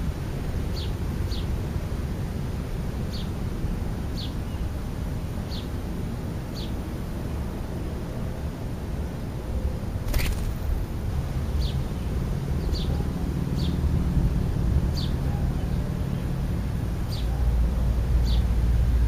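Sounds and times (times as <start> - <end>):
sharp click: 10.0 - 10.9.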